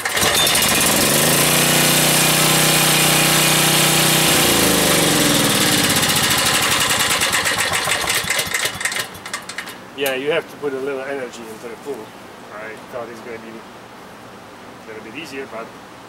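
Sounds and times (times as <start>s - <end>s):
generator engine running: 0.0s - 9.8s
recoil starter pull: 0.0s - 9.8s.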